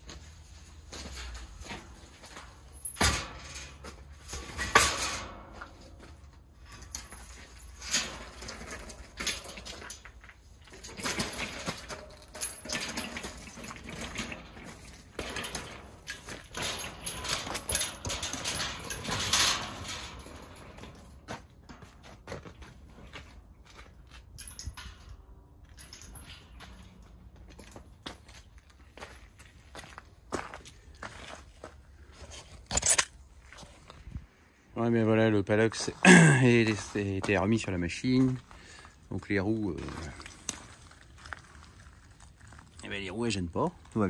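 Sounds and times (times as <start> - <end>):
caster wheels rumbling on ground: 0.4 - 23.4
wire mesh crate rattling: 1.0 - 23.4.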